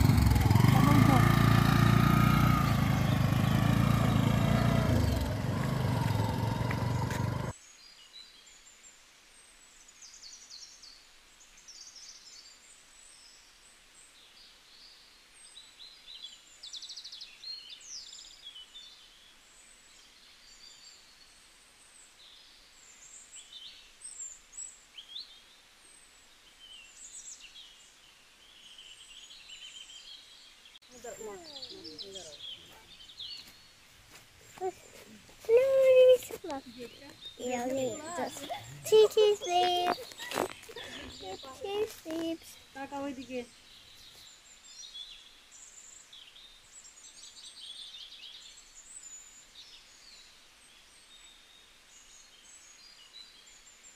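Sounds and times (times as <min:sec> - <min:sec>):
small motorcycle engine: 0:00.0 - 0:07.5
small birds chirping: 0:00.0 - 0:08.8, 0:14.1 - 0:53.9.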